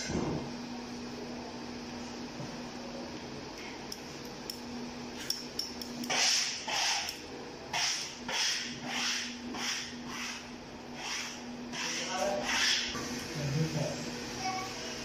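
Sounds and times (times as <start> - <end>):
tool rasping on wallpaper: 6.1 - 7.1, 7.7 - 13.0.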